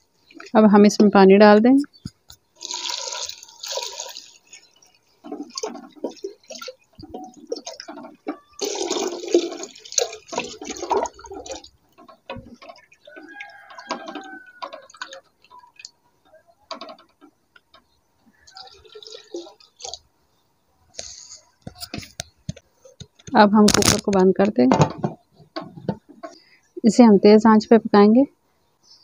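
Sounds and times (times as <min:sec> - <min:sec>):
water pouring into pressure cooker: 0:02.6 - 0:04.5, 0:08.4 - 0:11.7.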